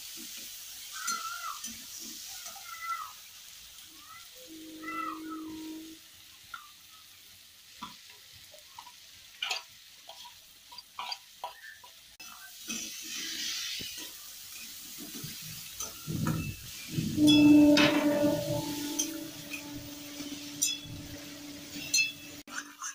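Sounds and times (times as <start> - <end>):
frying sizzle: 0.0 - 22.9
metal spatula stirring in pan: 7.8 - 22.9.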